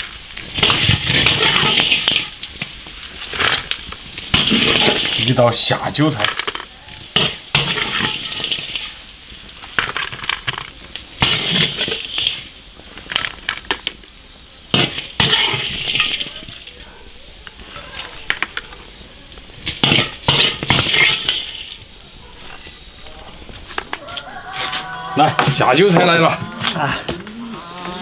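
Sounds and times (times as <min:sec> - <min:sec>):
food sizzling: 0:00.0 - 0:28.0
metal spatula scraping a wok: 0:00.5 - 0:02.5, 0:04.3 - 0:05.2, 0:06.3 - 0:09.0, 0:11.2 - 0:12.5, 0:14.7 - 0:16.7, 0:19.6 - 0:21.8.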